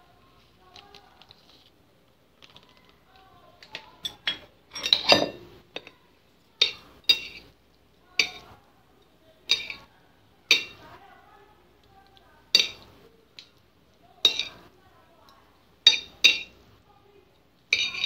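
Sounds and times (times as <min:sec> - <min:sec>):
metal utensil clinking on plate: 0:04.0 - 0:06.0, 0:06.6 - 0:07.5, 0:09.5 - 0:09.9, 0:10.5 - 0:10.8, 0:12.6 - 0:12.9, 0:14.2 - 0:14.6, 0:15.8 - 0:16.6, 0:17.7 - 0:18.0.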